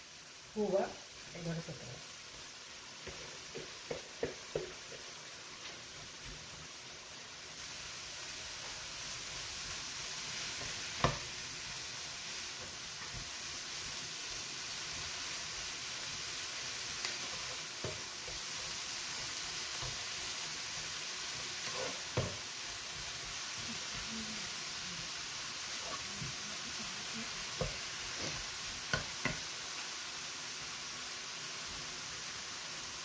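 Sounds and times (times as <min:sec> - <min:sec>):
vegetables sizzling in butter: 0:00.0 - 0:33.0
spatula knocking against pan: 0:03.5 - 0:05.1.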